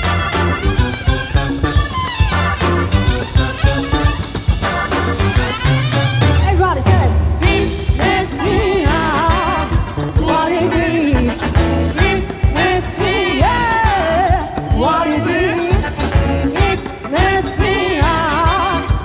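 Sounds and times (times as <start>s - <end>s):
funk band playing: 0.0s - 19.0s
woman singing lead: 6.4s - 19.0s.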